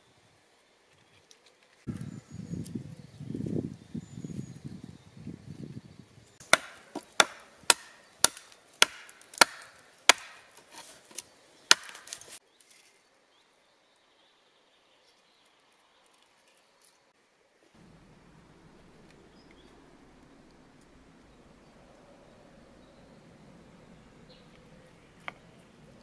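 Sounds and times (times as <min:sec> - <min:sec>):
hatchet chopping wood: 0:06.4 - 0:12.4.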